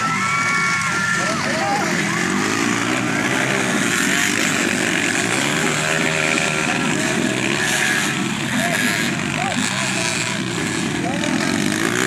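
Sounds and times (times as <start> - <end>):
dirt bike engines revving: 0.0 - 12.0.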